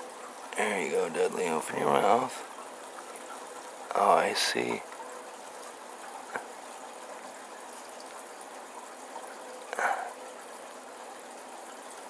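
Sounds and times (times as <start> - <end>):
faint hiss of running water: 0.0 - 12.0.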